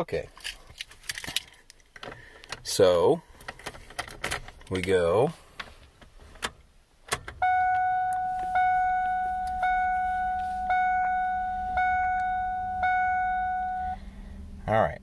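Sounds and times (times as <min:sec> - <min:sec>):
dashboard warning chime dinging: 0:07.3 - 0:14.0.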